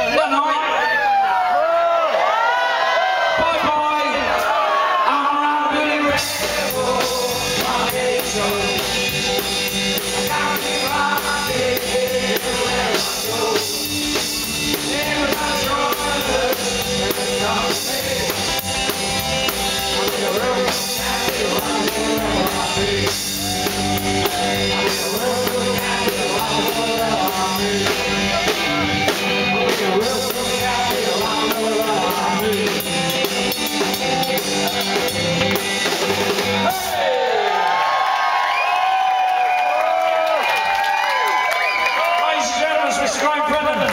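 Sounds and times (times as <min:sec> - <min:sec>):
live rock band playing: 0:04.3 - 0:37.0
person singing: 0:04.4 - 0:35.2
drum kit beat: 0:05.8 - 0:37.0.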